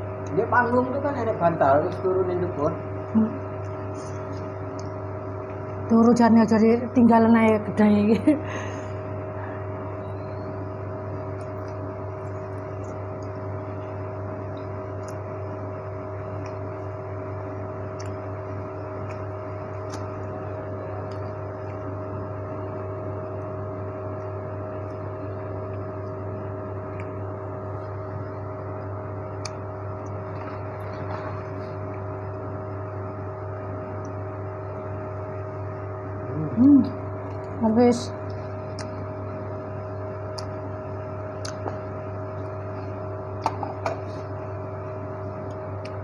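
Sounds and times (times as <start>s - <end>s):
fan humming: 0.0s - 46.0s.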